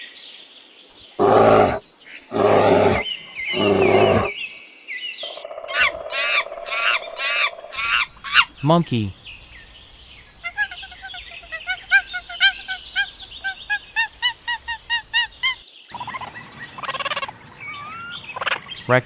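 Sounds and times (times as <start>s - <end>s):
monkey peeping calls: 5.6s - 18.9s.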